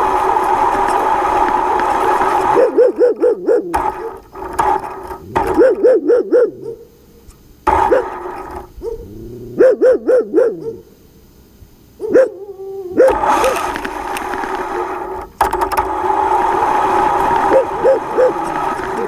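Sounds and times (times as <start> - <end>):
dog barking: 2.5 - 4.2, 5.4 - 7.0, 7.7 - 10.9, 12.0 - 12.4, 13.0 - 13.6, 17.5 - 18.5.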